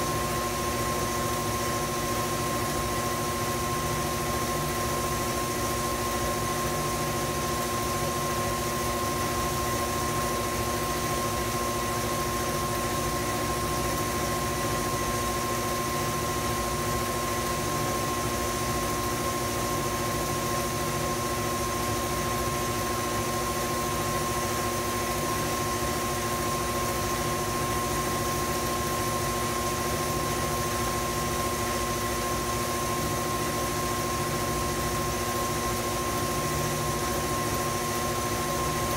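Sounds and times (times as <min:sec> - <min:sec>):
stand mixer motor whine: 0:00.0 - 0:38.9.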